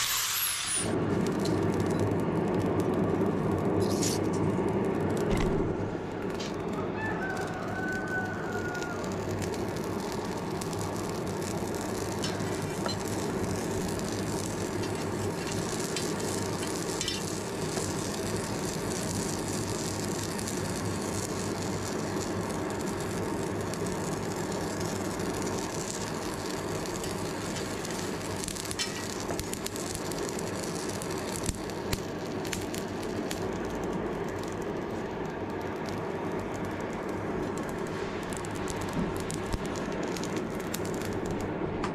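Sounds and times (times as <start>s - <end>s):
forge air blast rushing: 0.0s - 1.4s, 36.6s - 41.9s
coals crackling and sizzling: 0.0s - 41.9s.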